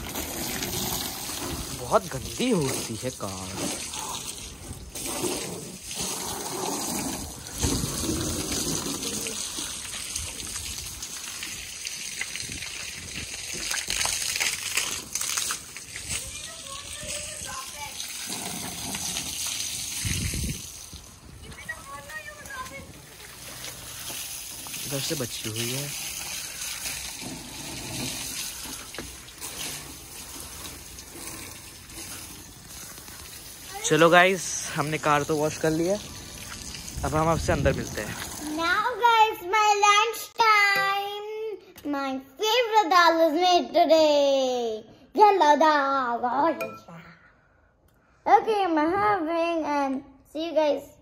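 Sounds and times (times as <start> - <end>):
water splashing on pavement: 0.0 - 39.8
hose water splashing on car: 0.0 - 40.6.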